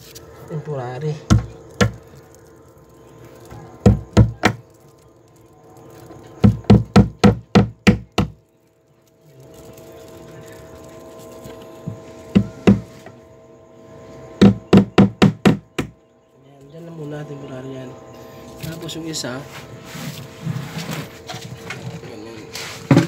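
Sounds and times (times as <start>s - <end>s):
hammer tapping on wood: 12.4s - 12.9s, 14.4s - 15.9s.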